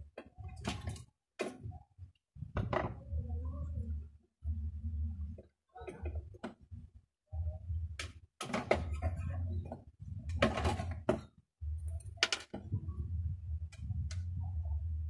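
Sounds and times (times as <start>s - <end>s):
low hum: 2.4s - 5.4s, 6.1s - 8.2s, 11.6s - 15.0s
wires and metal parts rattling: 8.0s - 12.8s.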